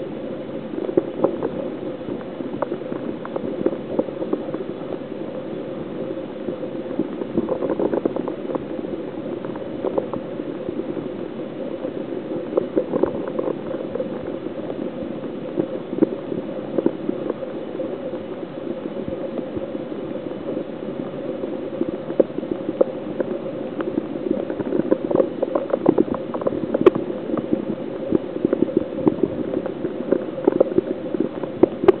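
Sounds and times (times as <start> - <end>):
water moving in aquarium: 0.0 - 32.0
small clicks and pops: 0.8 - 5.0, 21.8 - 32.0.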